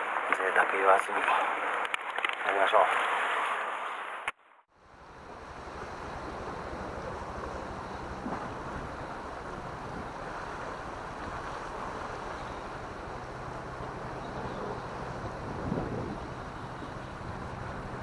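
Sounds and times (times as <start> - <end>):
wind on microphone: 5.1 - 18.0
surf washing against rocks: 5.3 - 18.0.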